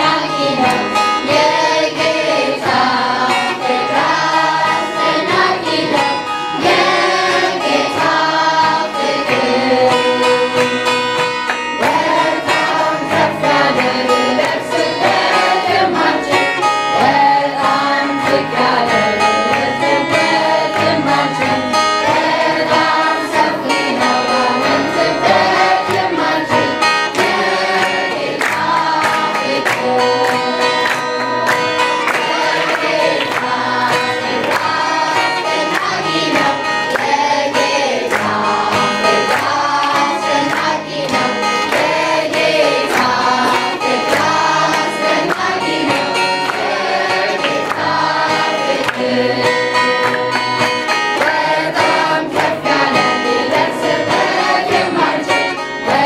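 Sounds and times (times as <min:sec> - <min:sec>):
children's choir singing: 0:00.0 - 0:56.0
instrumental accompaniment with beat: 0:00.0 - 0:56.0.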